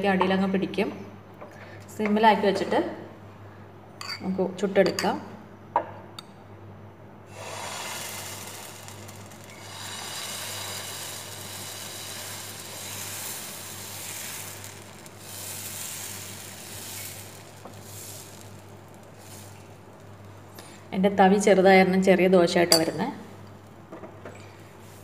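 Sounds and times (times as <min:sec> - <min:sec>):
batter sizzling on hot pan: 0:07.3 - 0:20.9.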